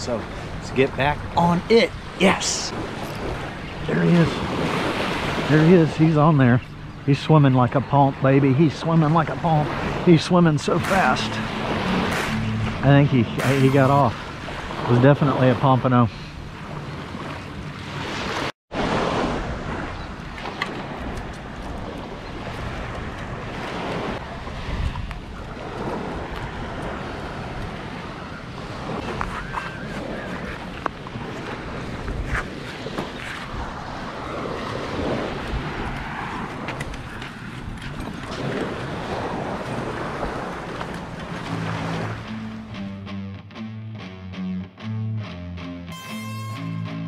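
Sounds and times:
wind on microphone: 0:16.3 - 0:42.3.

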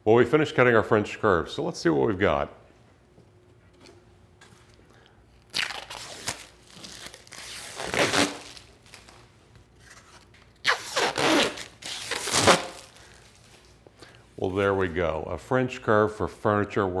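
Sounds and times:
protective film pulled off plastic: 0:05.4 - 0:13.8.

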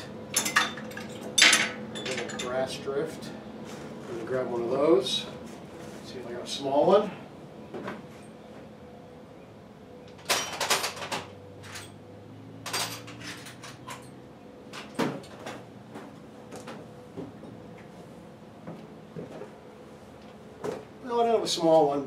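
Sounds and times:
metal tools clinking and rattling: 0:00.3 - 0:02.7, 0:10.2 - 0:12.0, 0:12.6 - 0:14.2.

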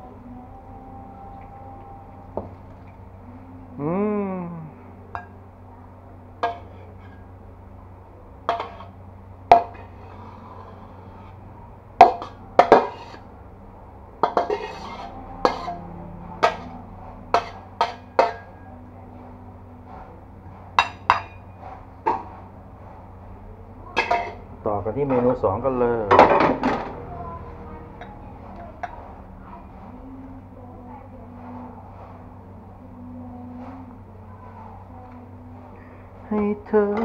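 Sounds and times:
low steady hum: 0:00.0 - 0:37.0
metal spatula clanking on wok: 0:06.4 - 0:07.2, 0:08.5 - 0:10.0, 0:14.2 - 0:18.6, 0:24.0 - 0:24.4.

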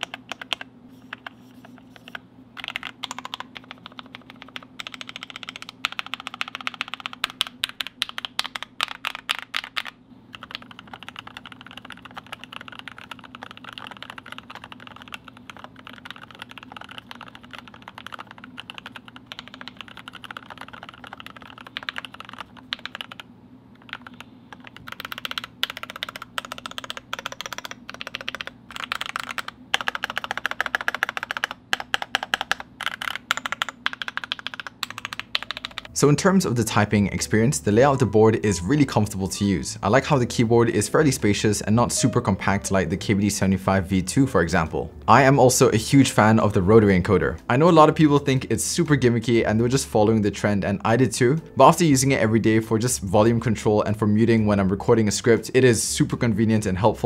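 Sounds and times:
fast typing on mechanical keyboard: 0:00.0 - 0:36.0.

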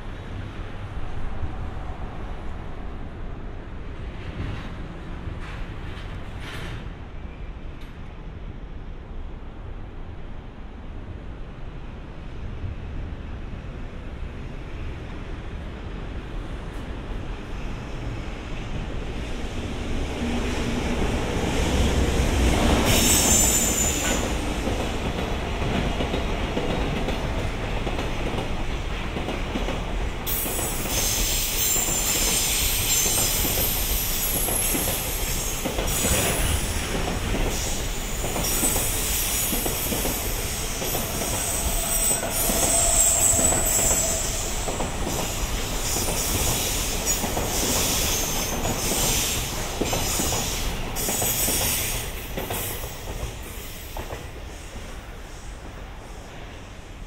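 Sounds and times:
train wheels clattering over track: 0:04.1 - 0:07.0, 0:20.2 - 0:55.0
train wheels squealing on rails: 0:20.1 - 0:28.0, 0:30.2 - 0:56.8.

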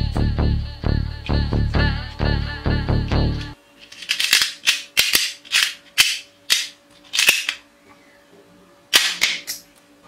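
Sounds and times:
toy gun cracks: 0:04.0 - 0:07.6.

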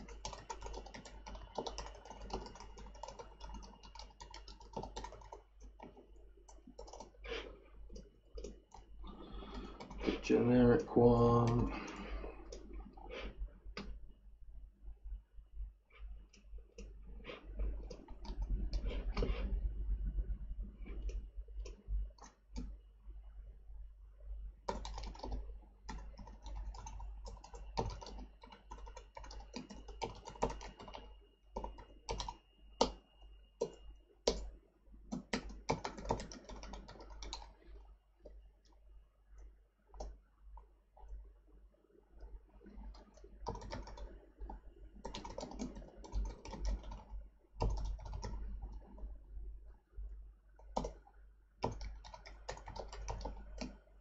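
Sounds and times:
typing on computer keyboard: 0:00.0 - 0:10.2, 0:17.6 - 0:19.4, 0:20.9 - 0:22.7, 0:24.7 - 0:33.0, 0:33.6 - 0:34.5, 0:35.1 - 0:37.6, 0:40.0 - 0:40.2, 0:42.7 - 0:49.1, 0:50.6 - 0:51.0, 0:51.6 - 0:53.8.

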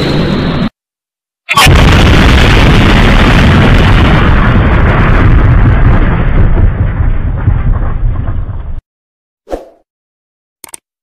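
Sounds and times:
heavy low rumble: 0:01.7 - 0:08.8
fireworks crackling and popping: 0:01.8 - 0:08.8.

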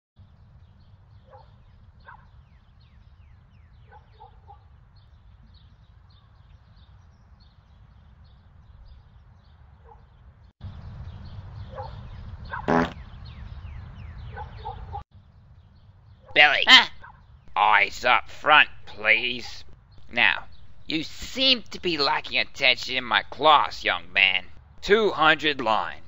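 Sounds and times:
small birds chirping: 0:00.2 - 0:26.0
distant dog barks: 0:01.2 - 0:02.4, 0:03.8 - 0:04.7, 0:09.8 - 0:10.2, 0:11.6 - 0:12.9, 0:14.2 - 0:15.0, 0:16.2 - 0:17.3.

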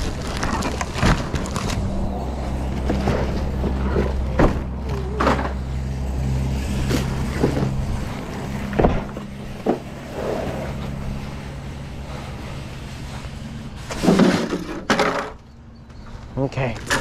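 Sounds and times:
plastic wrap crinkling: 0:00.0 - 0:02.4
low engine hum: 0:00.0 - 0:16.5.

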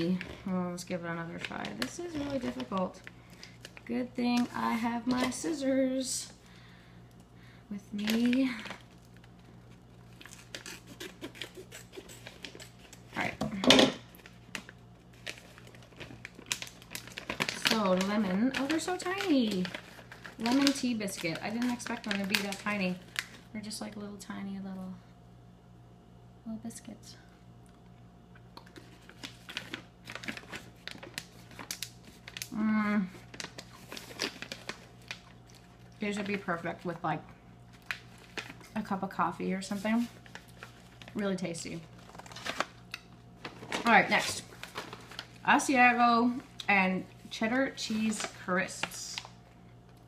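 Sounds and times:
packaging crinkling: 0:00.0 - 0:07.3, 0:07.9 - 0:13.4, 0:14.0 - 0:23.5, 0:28.6 - 0:37.0, 0:37.6 - 0:50.0
cookie crunching: 0:07.8 - 0:23.4, 0:27.8 - 0:37.0
bag ripping: 0:10.1 - 0:13.1, 0:42.0 - 0:42.8.

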